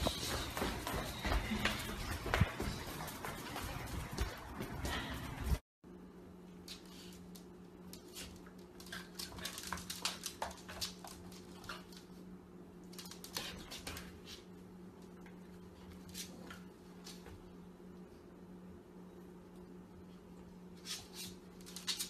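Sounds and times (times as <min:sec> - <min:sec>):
steady low hum: 0:00.0 - 0:22.0
dog claws clicking on floor: 0:06.7 - 0:12.1, 0:20.8 - 0:22.0.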